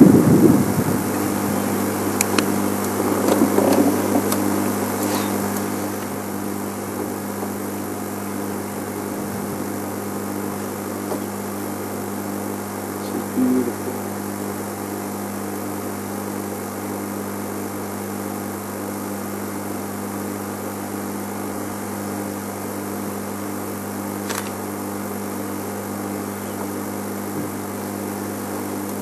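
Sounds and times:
vehicle engine idling: 0:00.0 - 0:14.6.

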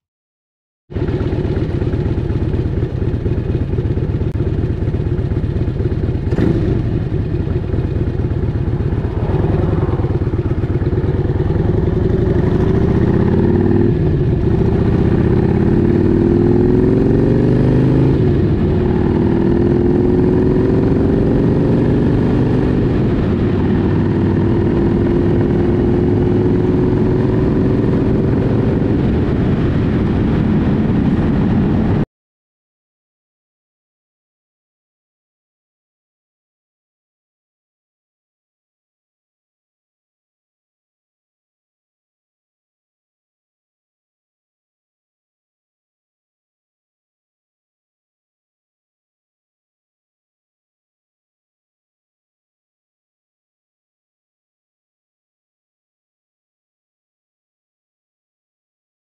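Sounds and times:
motorcycle engine accelerating: 0:00.9 - 0:32.0.

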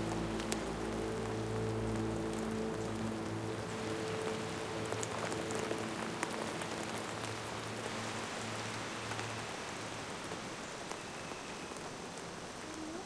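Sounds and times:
rain on foliage and roofs: 0:00.0 - 0:13.0.

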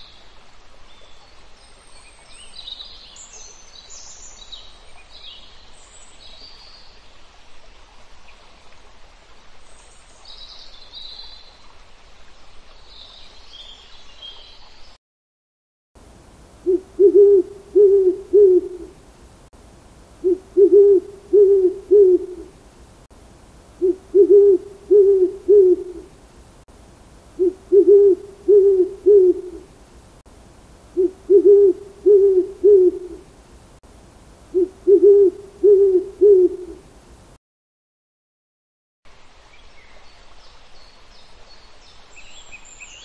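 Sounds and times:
owl hooting: 0:16.6 - 0:19.0, 0:20.2 - 0:22.5, 0:23.8 - 0:26.1, 0:27.4 - 0:29.7, 0:30.9 - 0:33.3, 0:34.5 - 0:36.8.

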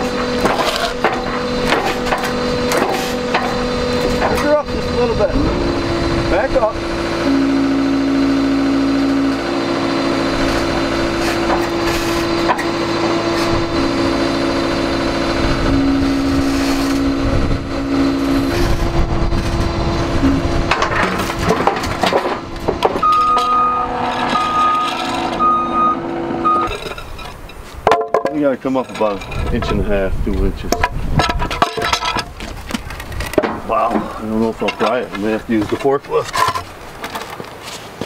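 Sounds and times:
reversing alarm beeping: 0:00.0 - 0:20.8, 0:22.4 - 0:26.9
diesel engine running: 0:00.0 - 0:27.9.

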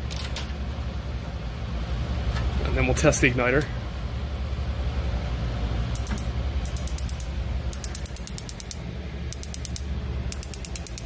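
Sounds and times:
steady low hum: 0:00.0 - 0:11.0
grill igniter ticking sparks: 0:05.9 - 0:11.0.

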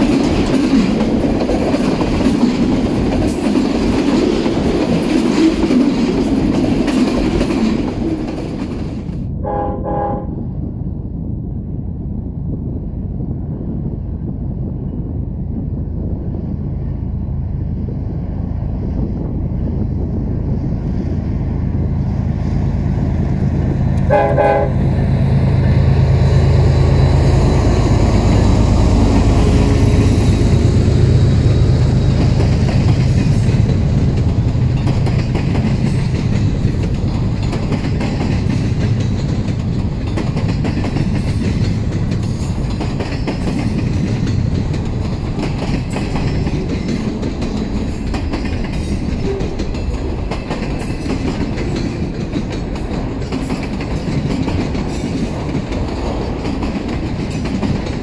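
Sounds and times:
locomotive engine rumble: 0:00.0 - 0:58.0
locomotive horn blast: 0:09.4 - 0:10.4, 0:24.0 - 0:25.0
freight cars rolling past: 0:16.3 - 0:58.0.

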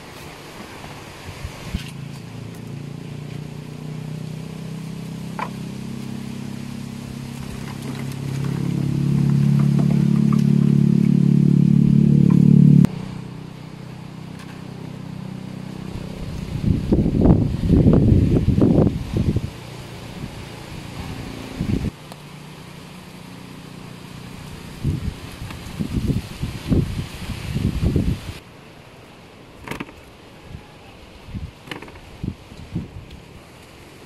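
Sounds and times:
motor engine running: 0:01.8 - 0:26.9.

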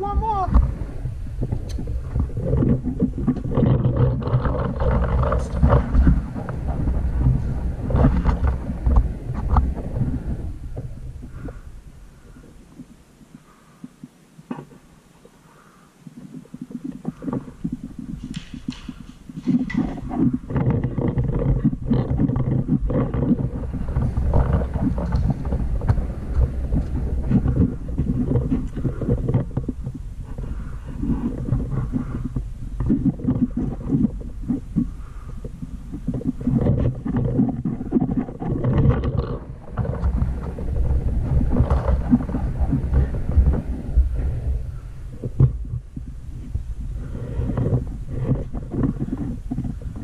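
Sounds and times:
wind rumble on microphone: 0:00.0 - 0:50.0.

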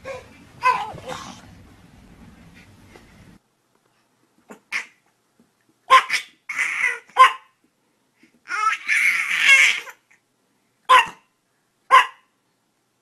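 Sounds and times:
small dog yapping: 0:05.9 - 0:07.6, 0:10.9 - 0:11.3, 0:11.9 - 0:12.3.

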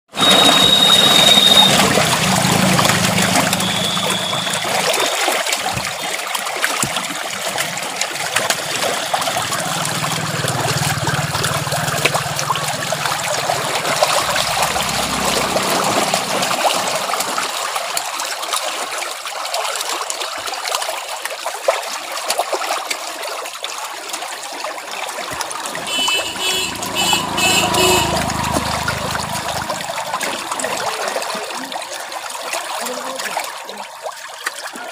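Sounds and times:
high chirps: 0:00.2 - 0:02.5, 0:03.1 - 0:05.1
fish splashing in water: 0:00.2 - 0:20.9, 0:24.0 - 0:34.9.

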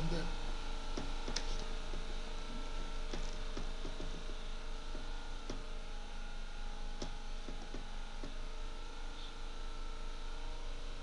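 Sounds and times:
room and microphone hum: 0:00.0 - 0:11.0
faint clicks and knocks: 0:03.1 - 0:04.4, 0:07.0 - 0:08.4.

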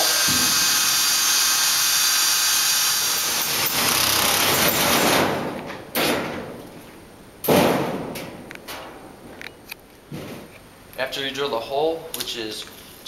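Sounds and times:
electric drill cutting metal: 0:00.0 - 0:05.0
sharp knocks: 0:07.4 - 0:09.0.

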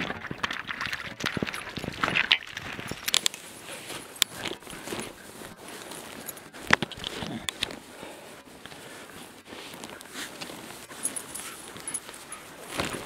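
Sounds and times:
footsteps rustling through grass: 0:03.4 - 0:13.0.

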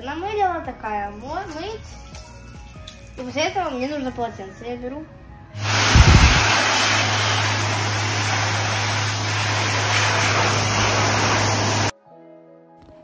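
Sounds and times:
hand dryer blowing air: 0:05.6 - 0:11.9.

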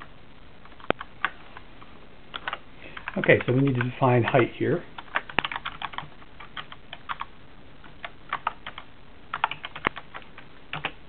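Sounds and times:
computer keyboard typing: 0:02.3 - 0:11.0.

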